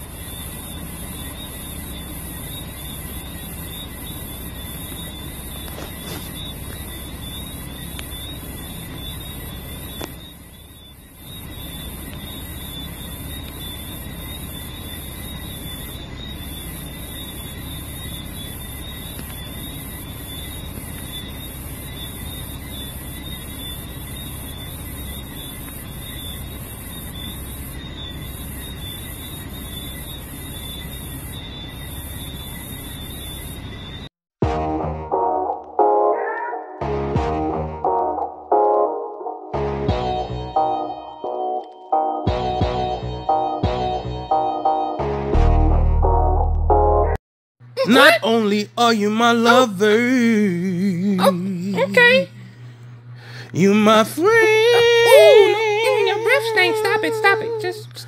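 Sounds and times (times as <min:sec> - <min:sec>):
shrill high-pitched tone: 0:47.8 - 0:48.6, 0:53.6 - 0:57.8.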